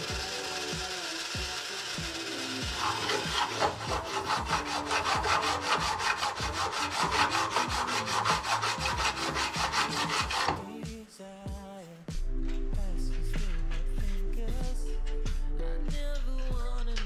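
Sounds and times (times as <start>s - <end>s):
hand tool rasping on aluminium: 2.1s - 10.7s.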